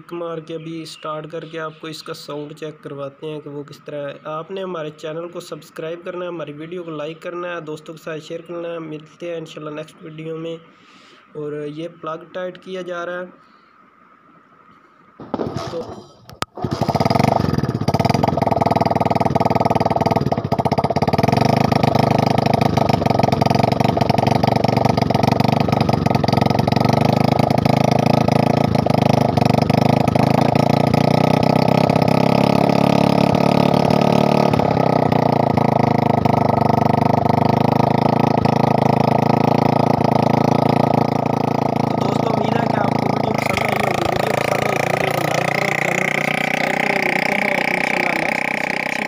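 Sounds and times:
motorcycle engine running: 15.3s - 49.0s.

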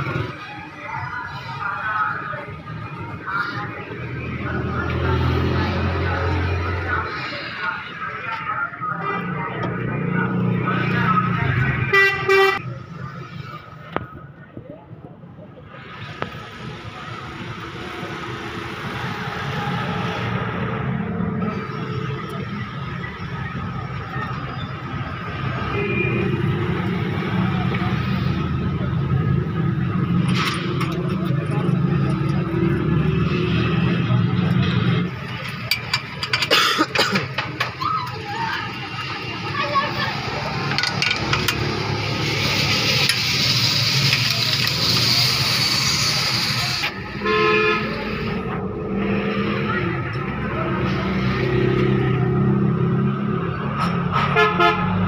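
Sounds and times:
traffic noise: 0.0s - 55.0s
vehicle engine rumbling: 0.0s - 55.0s
vehicle horn honking: 11.9s - 12.6s, 47.2s - 48.2s, 54.3s - 55.0s
spanners clicking on metal: 35.4s - 36.5s.

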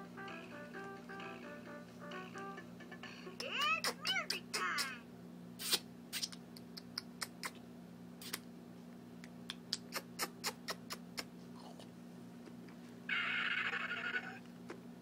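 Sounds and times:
wet mouth sucking and smacking: 5.6s - 7.6s, 8.2s - 8.4s.

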